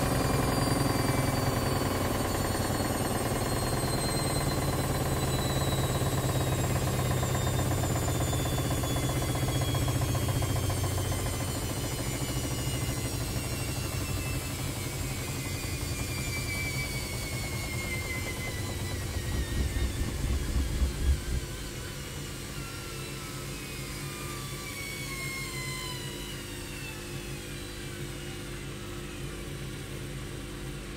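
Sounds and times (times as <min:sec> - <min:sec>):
washing machine motor whine: 0:00.0 - 0:30.9
washing machine drum rumble: 0:17.3 - 0:21.8.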